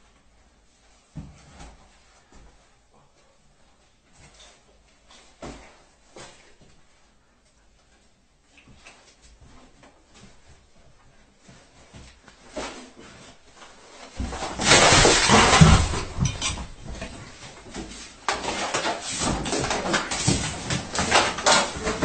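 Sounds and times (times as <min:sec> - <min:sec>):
shuffling and rustling: 0:00.0 - 0:22.0
rubbish crashing and spilling: 0:14.1 - 0:22.0.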